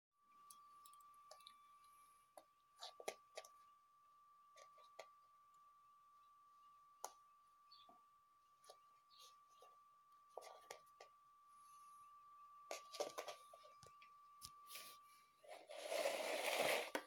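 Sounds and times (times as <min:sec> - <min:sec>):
faint steady tone: 0:00.2 - 0:17.0.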